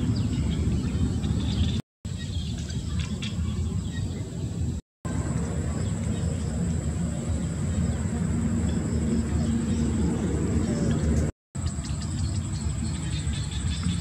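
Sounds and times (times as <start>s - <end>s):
steady low rumble: 2.5s - 14.0s.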